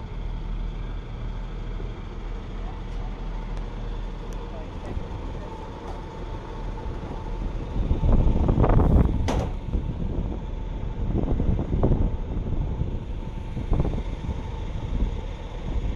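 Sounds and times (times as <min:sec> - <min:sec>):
diesel train idling hum: 0:00.0 - 0:15.9
wind buffeting microphone: 0:04.8 - 0:15.9.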